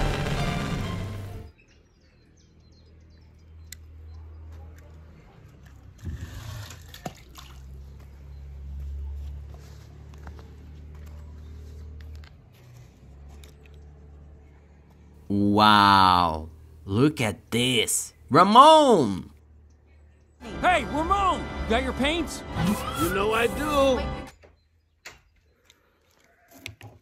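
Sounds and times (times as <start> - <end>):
music: 0.0 - 1.5, 20.4 - 24.3
water sloshing and trickling: 5.6 - 8.8.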